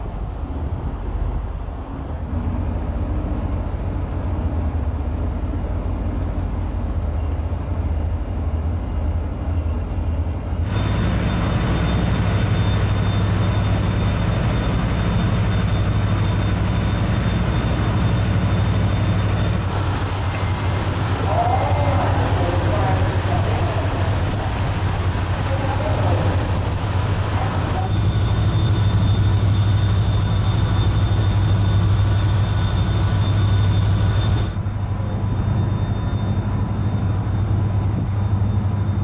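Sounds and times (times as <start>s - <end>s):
ship engines droning: 0.0s - 39.0s
wind: 0.0s - 39.0s
faint high whine: 10.7s - 39.0s.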